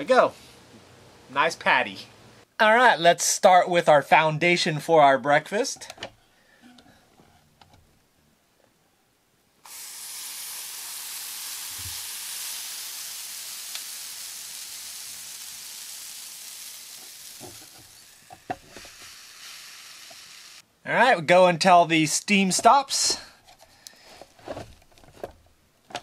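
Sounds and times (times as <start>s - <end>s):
waffle batter sizzling: 9.6s - 20.6s.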